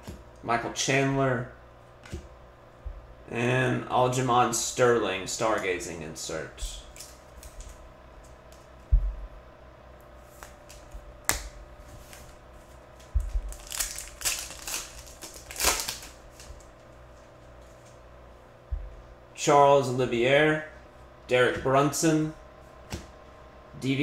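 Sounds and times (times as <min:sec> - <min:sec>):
foil wrapper tearing and crinkling: 0:13.2 - 0:16.7.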